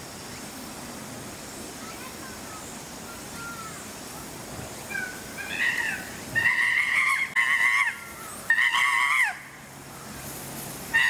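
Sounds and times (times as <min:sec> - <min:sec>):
chimpanzee screams: 0:04.9 - 0:09.6.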